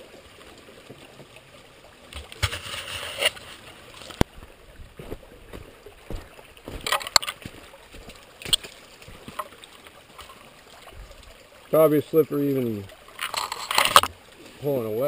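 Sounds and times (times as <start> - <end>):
water sloshing in creek: 0.0 - 15.0.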